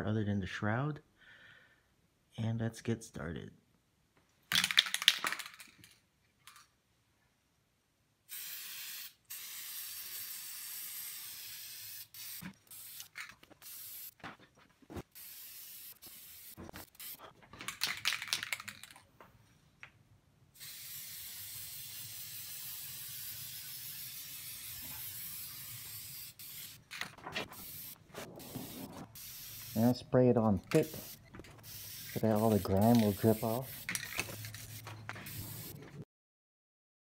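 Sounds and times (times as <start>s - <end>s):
aerosol can spraying: 8.3s - 14.2s, 15.1s - 17.2s, 20.6s - 30.0s, 30.6s - 36.0s.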